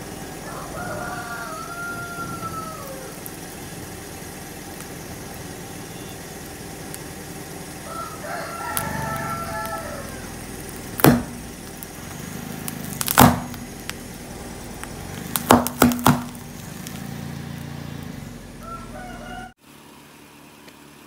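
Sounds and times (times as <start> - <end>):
low engine hum: 0.0 - 21.0
hard candies cracking under tyre: 2.6 - 18.3.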